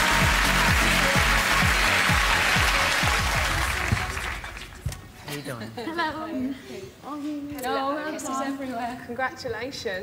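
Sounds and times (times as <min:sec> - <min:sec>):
audience applauding: 0:00.0 - 0:04.8
stage music with steady beat: 0:00.0 - 0:05.2.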